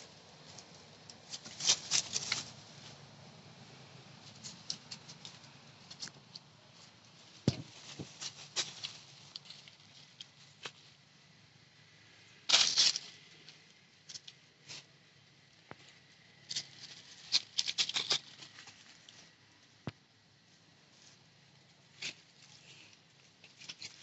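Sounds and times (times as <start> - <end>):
scratchy rustle: 0.4 - 3.0, 4.2 - 10.8, 16.4 - 19.3, 21.9 - 24.0.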